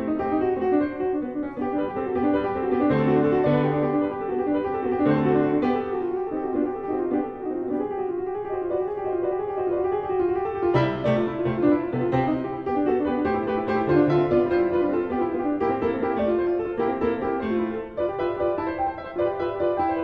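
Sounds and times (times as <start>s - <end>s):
solo grand piano: 0.0s - 20.0s.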